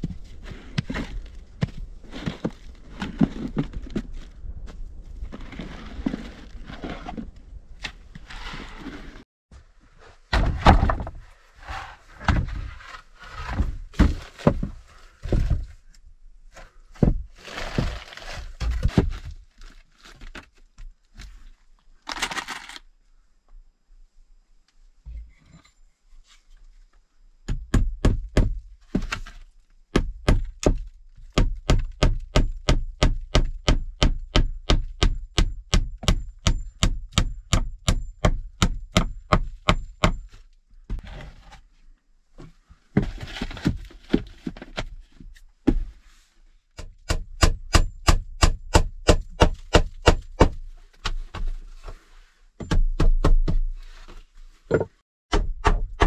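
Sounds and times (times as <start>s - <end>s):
hammer striking nails into wood: 31.4s - 40.2s, 46.8s - 50.6s, 55.3s - 56.0s.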